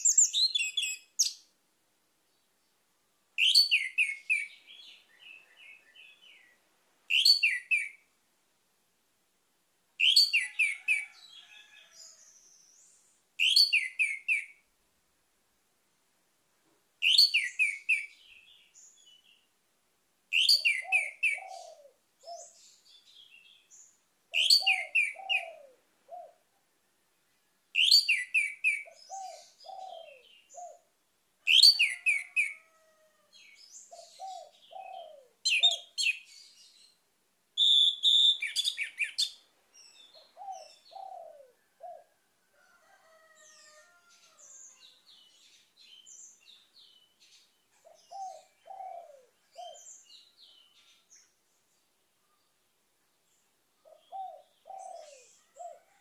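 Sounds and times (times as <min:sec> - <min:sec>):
bird twittering: 0:37.6 - 0:39.4.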